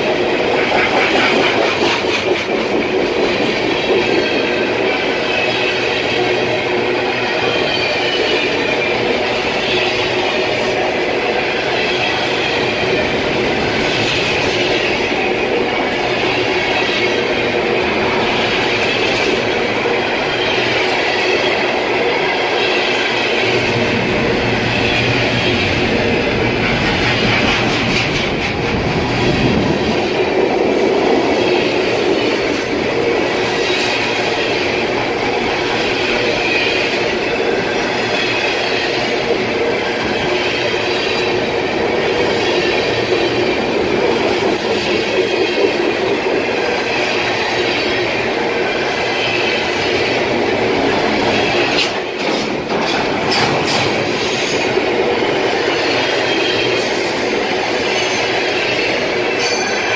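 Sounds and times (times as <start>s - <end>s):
train wheels rumbling on rails: 0.0s - 59.9s
high wheel squeal: 55.7s - 59.9s.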